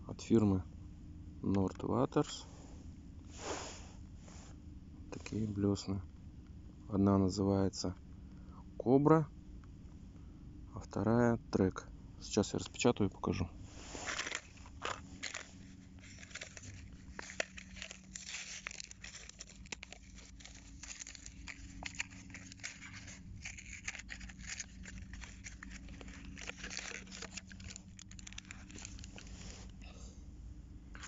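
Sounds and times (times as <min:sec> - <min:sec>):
plastic blister packs crackling: 0:13.9 - 0:29.8.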